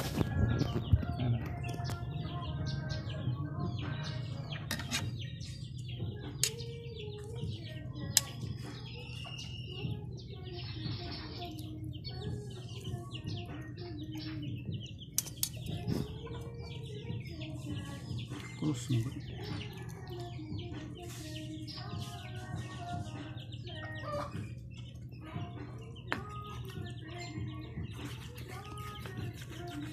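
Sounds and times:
small birds chirping: 0:00.0 - 0:29.9
cutlery scraping cutting board: 0:04.7 - 0:05.1.

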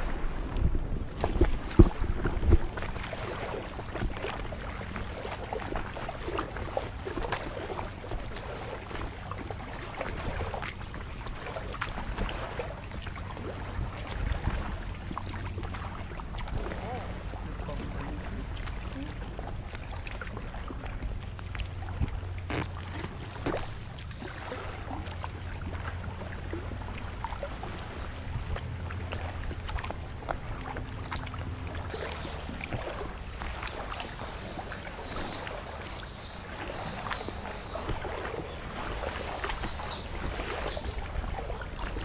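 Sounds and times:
water lapping against kayak hull: 0:00.0 - 0:42.0
birds chirping: 0:22.9 - 0:24.4, 0:31.9 - 0:42.0.

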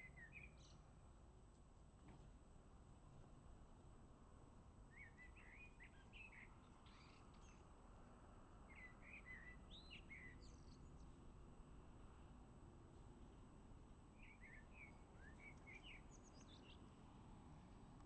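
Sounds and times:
songbird chirping: 0:00.0 - 0:00.9, 0:04.9 - 0:07.7, 0:08.6 - 0:11.3, 0:14.1 - 0:17.1
low background noise: 0:00.0 - 0:18.0.

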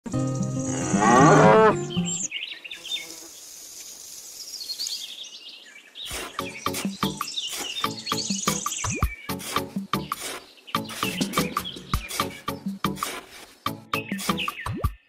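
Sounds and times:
cow mooing: 0:00.6 - 0:02.0
faint high bird chirps: 0:01.7 - 0:09.5, 0:10.2 - 0:12.8, 0:13.9 - 0:15.0.

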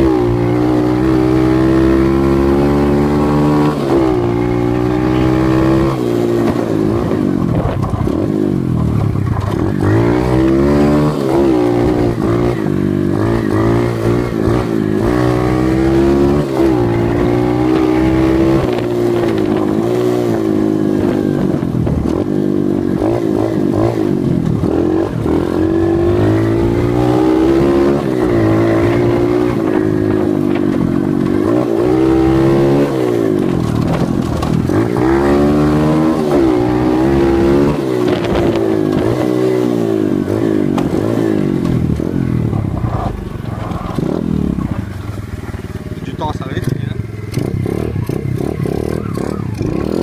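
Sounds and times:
dirt bike engine revving: 0:00.0 - 0:50.0.

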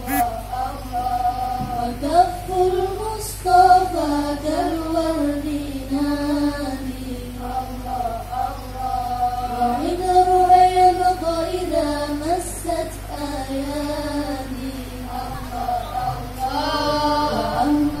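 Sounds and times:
high voice singing long notes: 0:00.0 - 0:02.7, 0:13.0 - 0:18.0.

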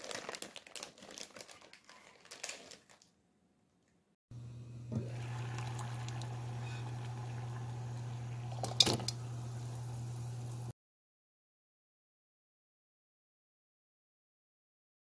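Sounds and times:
induction cooktop hum: 0:04.3 - 0:10.7
water hissing in pot: 0:04.8 - 0:10.7.

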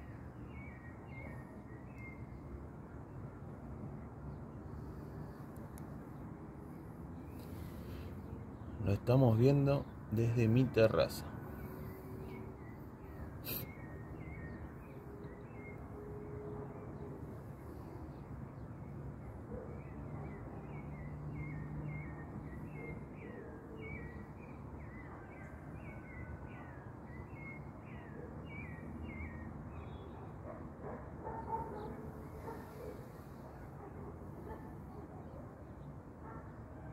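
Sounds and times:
outdoor background noise: 0:00.0 - 0:36.9.

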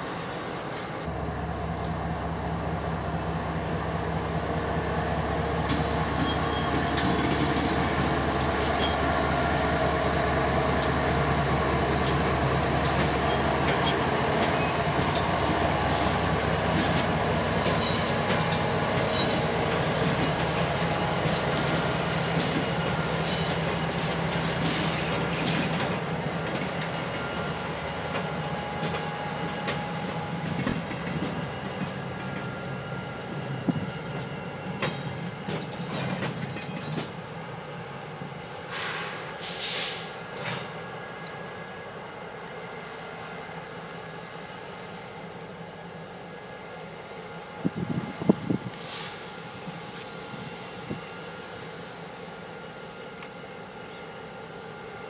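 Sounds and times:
diesel locomotive rumbling past: 0:00.0 - 0:55.0
steel wheels squealing on rails: 0:00.0 - 0:55.0
short air hisses: 0:38.7 - 0:40.2, 0:48.7 - 0:50.8.

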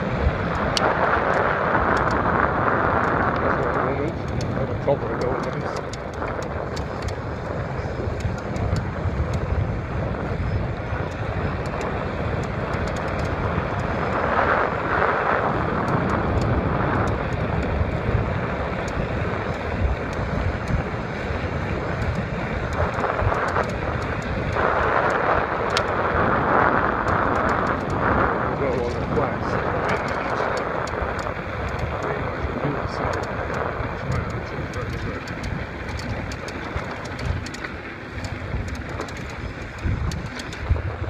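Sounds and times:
tyre and road noise: 0:00.0 - 0:41.0
wind buffeting microphone: 0:00.0 - 0:41.0
faint clicks: 0:00.5 - 0:02.2, 0:05.1 - 0:07.2, 0:08.1 - 0:09.5, 0:11.0 - 0:14.0, 0:15.8 - 0:17.8, 0:21.9 - 0:26.0, 0:33.0 - 0:40.8.

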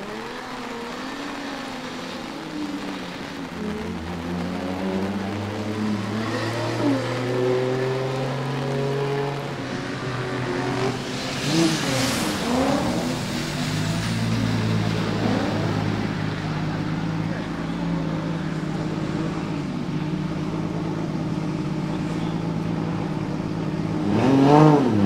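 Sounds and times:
car engine revving: 0:00.0 - 0:25.0
loud hissing rush: 0:09.3 - 0:24.1.

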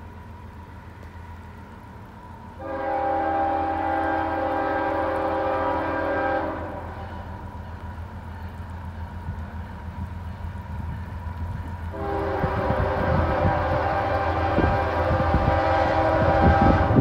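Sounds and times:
distant locomotive air horn: 0:02.6 - 0:07.8, 0:11.9 - 0:17.0.

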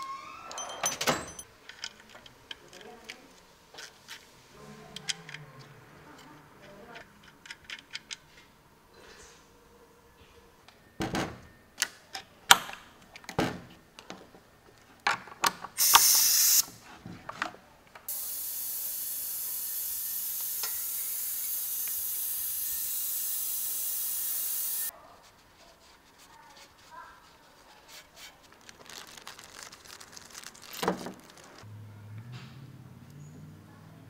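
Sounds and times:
pneumatic extractor hissing: 0:15.8 - 0:16.6, 0:18.1 - 0:24.9
compressed air burst: 0:15.8 - 0:16.7.

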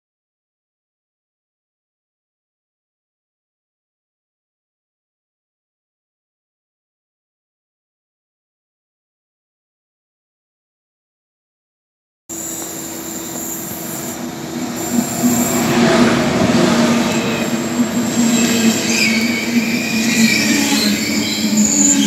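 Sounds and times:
high wheel squeal: 0:12.3 - 0:22.0
train running noise with hum: 0:12.3 - 0:22.0.

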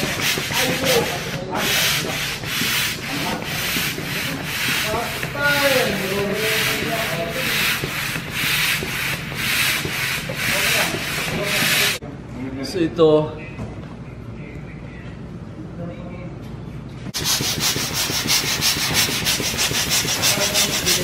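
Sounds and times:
hand air pump strokes: 0:00.0 - 0:12.0, 0:17.2 - 0:21.0.

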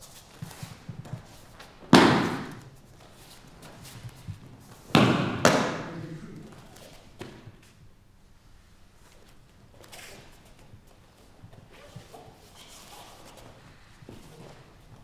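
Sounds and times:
bodies slamming onto mats: 0:01.9 - 0:02.6, 0:04.9 - 0:05.8.

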